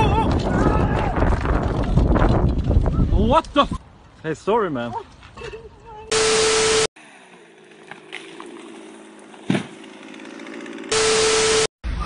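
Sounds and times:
static burst with beep: 6.1 - 6.9, 10.9 - 11.7.

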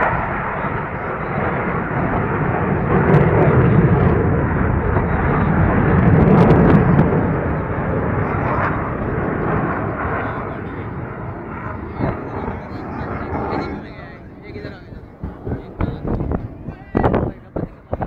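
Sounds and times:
jet aircraft flying past: 0.0 - 18.0.

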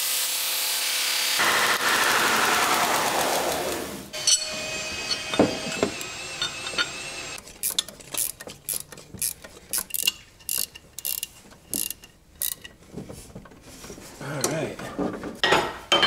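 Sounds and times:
ratchet wrench clicking: 7.6 - 12.7.

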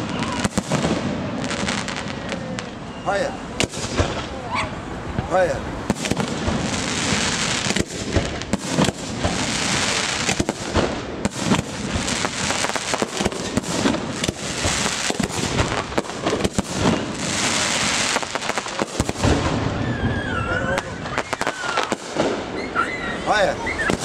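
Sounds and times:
firework shells bursting: 5.9 - 19.8.

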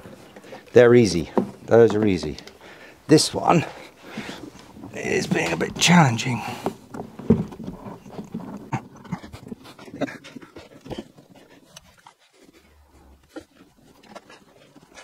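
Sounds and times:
harness straps rustling and clicking: 0.0 - 15.0
heavy breathing: 2.4 - 4.8.

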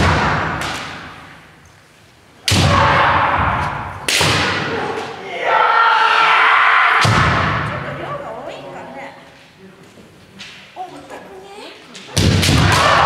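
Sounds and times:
people shouting: 2.5 - 7.8, 12.4 - 13.0
long drawn-out shout: 4.7 - 7.1.

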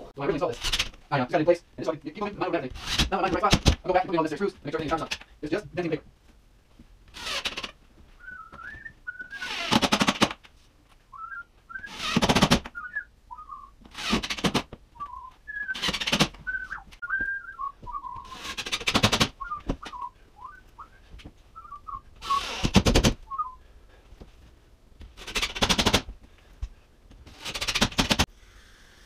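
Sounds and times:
cordless drill driving screws: 2.8 - 3.1, 11.9 - 12.5, 13.9 - 14.6, 22.2 - 23.0
man whistling a tune: 8.2 - 9.4, 11.2 - 11.9, 12.8 - 13.7, 15.0 - 15.8, 16.5 - 18.3, 19.4 - 21.0, 21.6 - 22.4, 23.3 - 23.6.

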